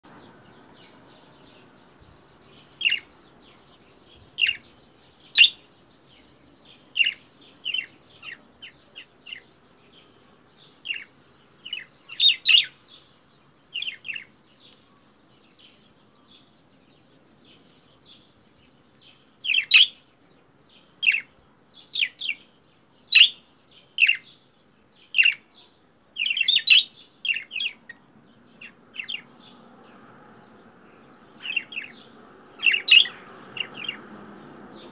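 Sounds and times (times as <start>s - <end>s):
budgerigar calling: 32.6s - 34.0s.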